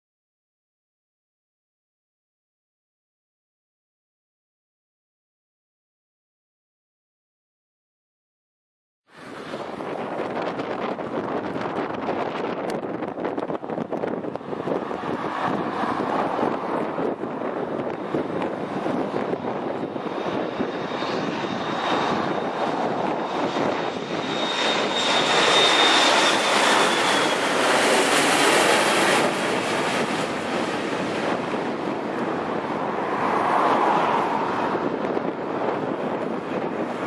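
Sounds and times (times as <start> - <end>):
jet passing low overhead: 9.1 - 37.0
thin high engine whine: 9.1 - 37.0.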